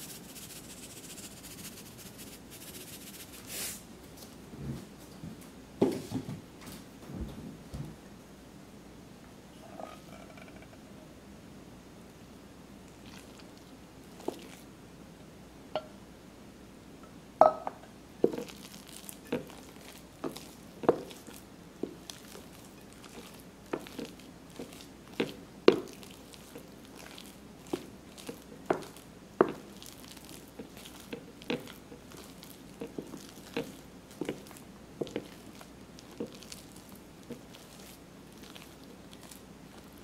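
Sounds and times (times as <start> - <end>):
potato squishing: 0.0 - 3.8, 13.0 - 14.7, 18.2 - 40.0
spoon knocking on glass bowl: 17.4 - 17.8.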